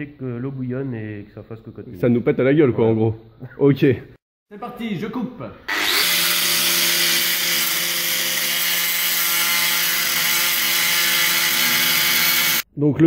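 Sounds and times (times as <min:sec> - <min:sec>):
angle grinder cutting metal: 0:05.7 - 0:12.6.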